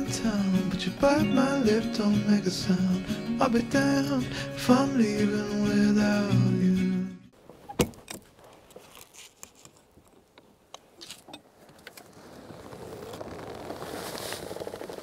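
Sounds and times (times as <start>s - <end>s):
buckles and straps clicking: 7.7s - 12.1s
tent fabric rustling: 8.4s - 9.8s, 11.4s - 15.0s.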